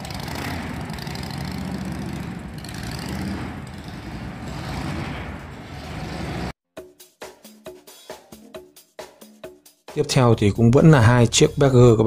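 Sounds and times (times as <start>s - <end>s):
motorcycle engines running: 0.0s - 6.5s.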